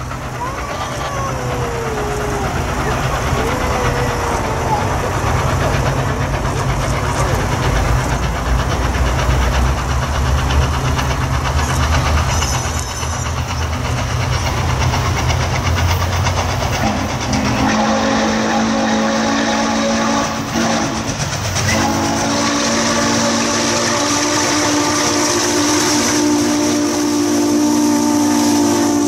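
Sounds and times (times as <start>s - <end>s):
steam locomotive rumbling: 0.0s - 29.0s
chime steam whistle: 16.8s - 29.0s.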